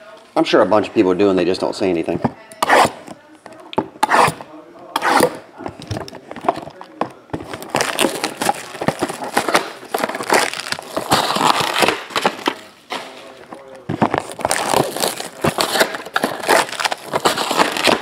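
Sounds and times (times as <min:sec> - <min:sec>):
plastic shrink wrap crinkling: 0:05.6 - 0:18.0.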